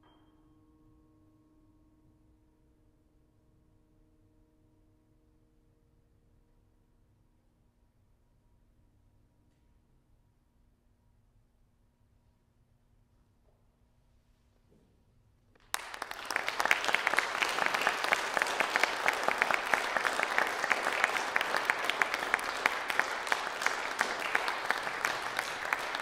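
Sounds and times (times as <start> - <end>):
audience applauding: 15.6 - 26.0.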